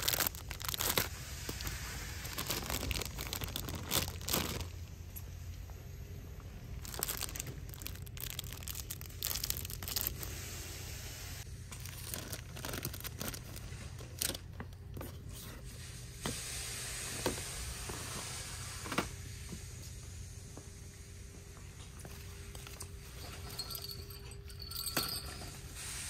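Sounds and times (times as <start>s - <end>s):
plastic packaging crinkling: 0.0s - 5.0s, 6.7s - 10.3s, 11.7s - 14.6s.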